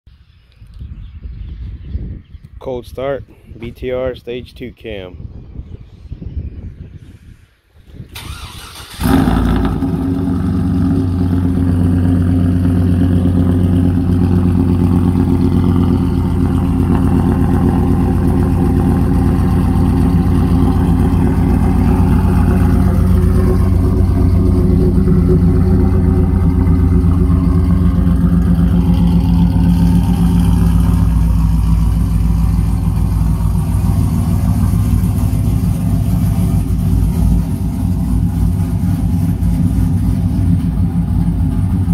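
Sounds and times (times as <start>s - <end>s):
engine starting: 8.1s - 10.0s
loud pulsing engine idle: 9.0s - 41.9s.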